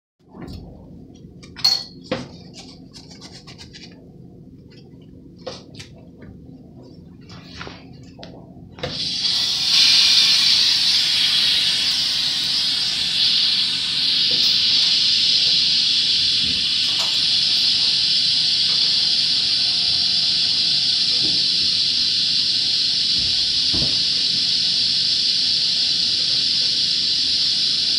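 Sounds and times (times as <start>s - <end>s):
steady low hum: 0.2s - 27.9s
hiss of rushing air: 9.0s - 27.9s
welding arc: 9.0s - 27.9s.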